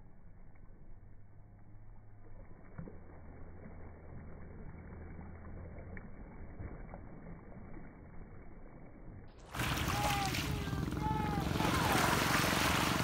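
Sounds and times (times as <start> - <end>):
low steady hum: 0.0 - 13.0
small waves washing over pebbles: 9.5 - 13.0.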